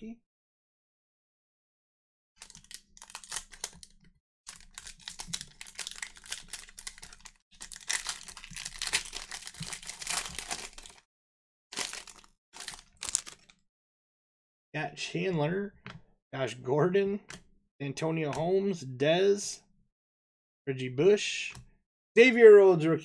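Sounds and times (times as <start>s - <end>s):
cards being shuffled: 2.4s - 11.0s
foil wrapper crinkling and tearing: 2.4s - 11.1s, 11.7s - 13.6s.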